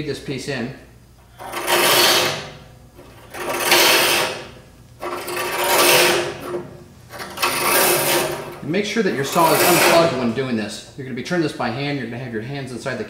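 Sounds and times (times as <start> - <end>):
bandsaw blade rasping: 1.2 - 10.5.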